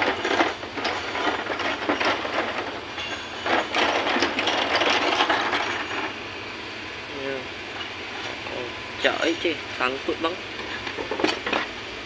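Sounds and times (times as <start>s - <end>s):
metal engine parts clicking and rattling: 0.0s - 6.2s, 7.7s - 8.6s, 10.6s - 11.8s.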